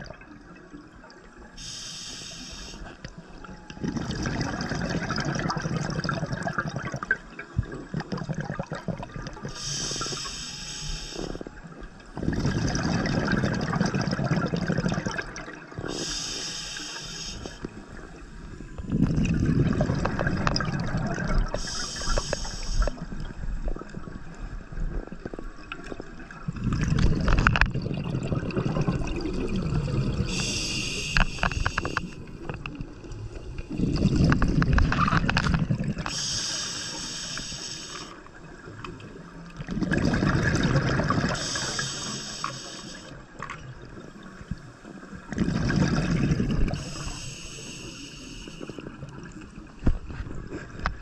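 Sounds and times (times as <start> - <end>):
underwater bubbling rush: 0.0 - 51.0
hissing regulator inhale: 1.6 - 3.0, 9.4 - 11.5, 15.8 - 19.1, 21.4 - 23.2, 30.1 - 32.3, 33.8 - 38.3, 41.2 - 43.3, 46.3 - 49.1.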